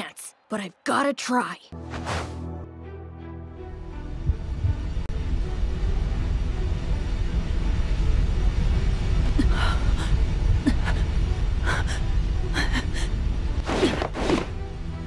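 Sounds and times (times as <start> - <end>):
deep rumbling drone: 3.5 - 13.7.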